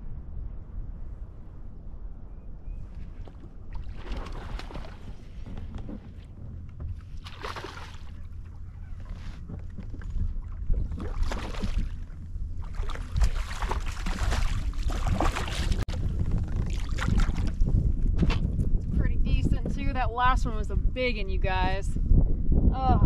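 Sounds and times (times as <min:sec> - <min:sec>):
low wind rumble on microphone: 0:00.0 - 0:23.0
fish splashing at water surface: 0:03.7 - 0:05.1.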